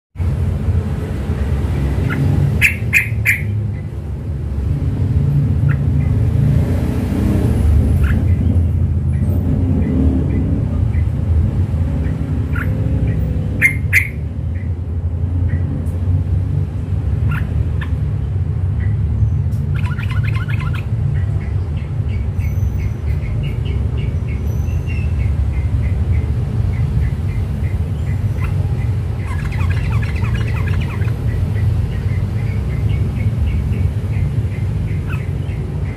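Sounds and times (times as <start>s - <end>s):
bulbul chirping: 2.0s - 3.9s, 12.0s - 14.8s, 19.6s - 35.9s.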